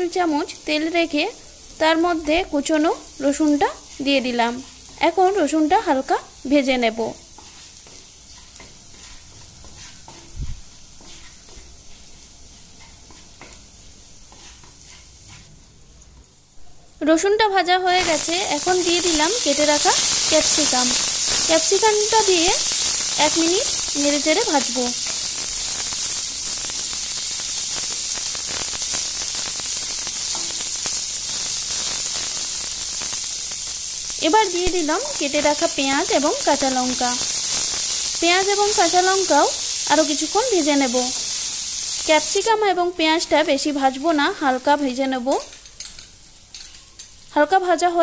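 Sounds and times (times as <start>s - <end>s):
garlic sizzling in oil: 0.0s - 48.0s
spatula scraping pan: 7.4s - 10.4s, 14.3s - 15.5s.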